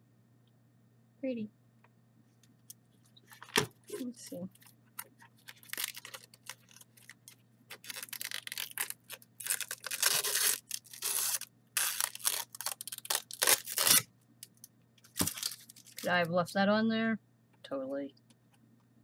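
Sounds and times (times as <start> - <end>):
plastic film crinkling: 3.3 - 14.1, 15.0 - 16.3.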